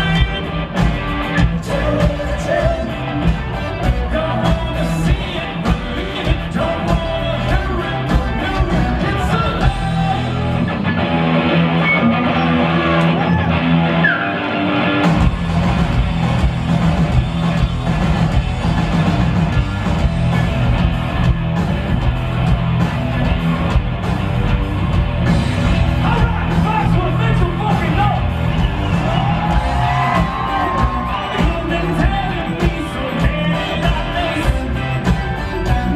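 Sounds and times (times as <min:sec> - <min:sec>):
man singing: 0:00.0 - 0:10.7, 0:26.0 - 0:28.2, 0:29.9 - 0:35.9
rock band playing live: 0:00.0 - 0:35.9.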